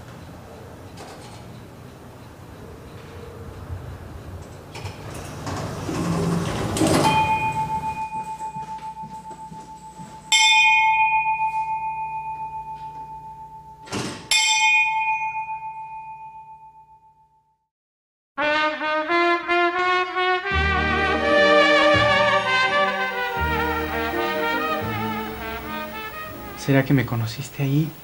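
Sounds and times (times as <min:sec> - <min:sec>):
rising rushing swell: 0:20.6 - 0:27.0.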